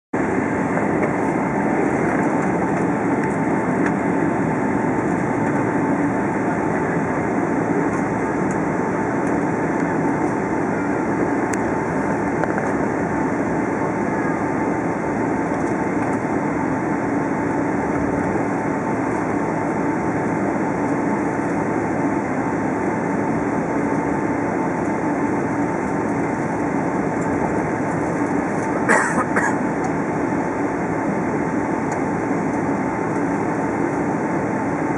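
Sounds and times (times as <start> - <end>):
cabin air noise: 0.2 - 34.9
jet engines humming: 0.2 - 34.9.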